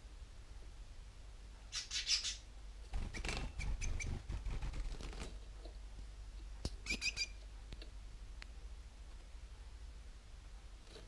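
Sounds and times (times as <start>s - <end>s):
finches chirping: 3.1s - 4.2s, 6.8s - 7.4s.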